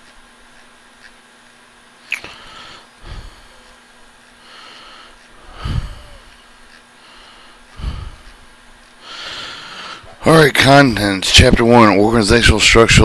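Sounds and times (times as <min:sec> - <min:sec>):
soft hissy breathing: 0:02.1 - 0:11.2.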